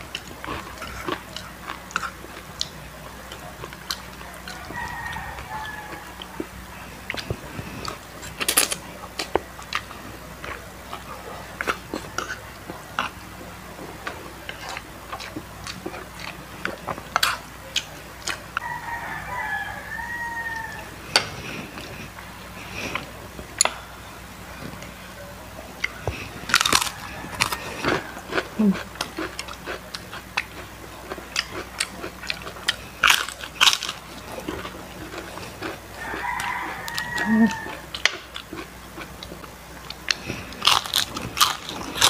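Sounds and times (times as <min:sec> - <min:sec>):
crunchy chewing: 0:00.0 - 0:42.0
rooster crowing: 0:04.2 - 0:06.4, 0:18.6 - 0:21.4, 0:25.8 - 0:28.6, 0:35.6 - 0:38.2.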